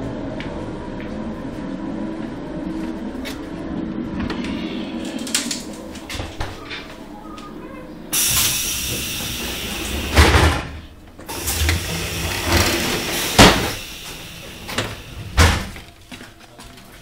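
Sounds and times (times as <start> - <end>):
doors banging shut: 8.9 - 13.8, 14.7 - 15.8.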